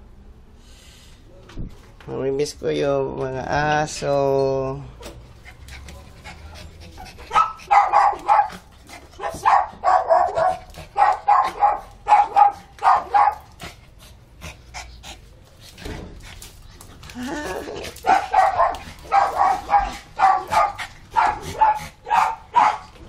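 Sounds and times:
small dog yapping: 7.3 - 13.5, 18.0 - 22.9.

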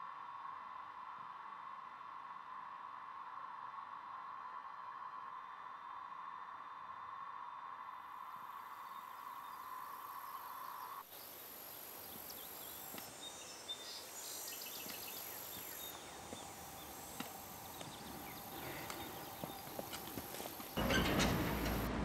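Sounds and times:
high insect drone: 0.1 - 22.0
bird chirps: 12.1 - 21.8
footsteps on stony path: 14.6 - 21.9.

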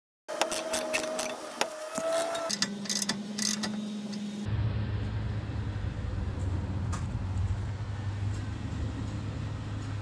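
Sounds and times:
ratchet wrench clicking: 2.1 - 4.2
steady low hum: 2.4 - 10.0.

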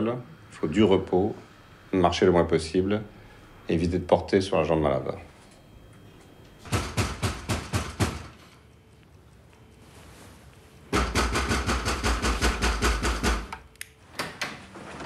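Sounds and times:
knocking on a door: 6.7 - 8.3, 11.0 - 13.5.

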